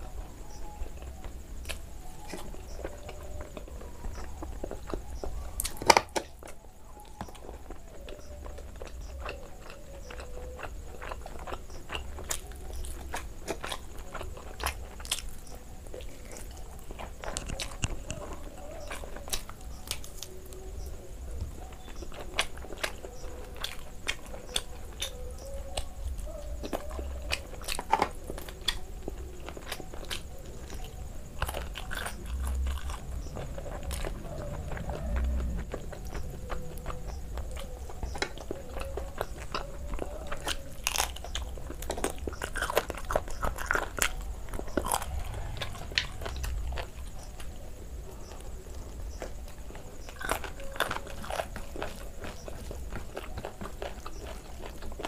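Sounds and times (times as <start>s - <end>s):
person chewing meat off bone: 8.0s - 20.2s, 31.4s - 46.9s, 49.2s - 55.0s.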